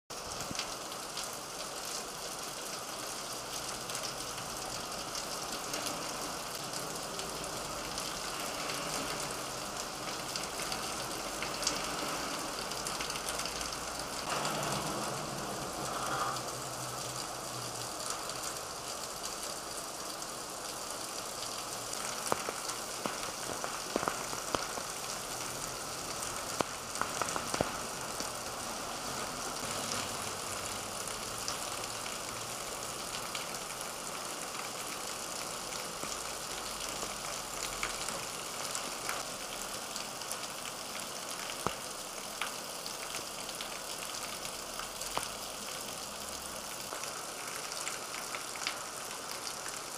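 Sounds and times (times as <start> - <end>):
heavy rain on street: 0.1 - 49.9
vehicle passing: 14.3 - 17.5.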